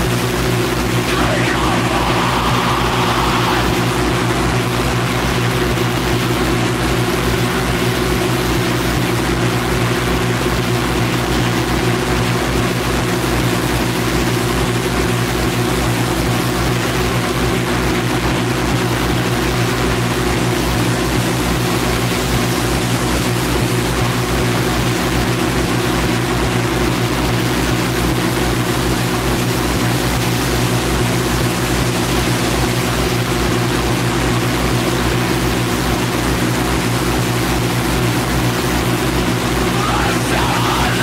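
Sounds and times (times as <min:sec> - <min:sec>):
droning low hum: 0:00.8 - 0:08.2
burst of midrange noise: 0:00.9 - 0:06.4, 0:39.4 - 0:41.0
dense wall of hiss: 0:01.1 - 0:05.1
low pulse beating: 0:01.1 - 0:05.2.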